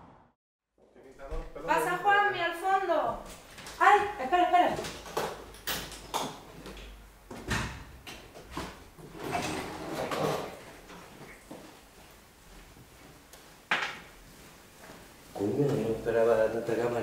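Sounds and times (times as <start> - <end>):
footsteps on tiles: 2.6 - 9.0, 10.6 - 16.2.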